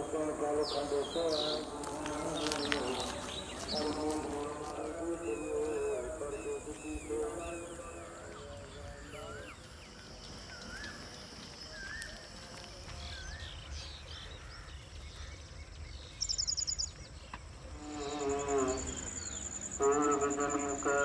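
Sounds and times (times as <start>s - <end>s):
person chanting or singing: 0.0s - 9.5s, 19.8s - 21.0s
bird calls: 0.0s - 21.0s
insects chirring: 0.0s - 21.0s.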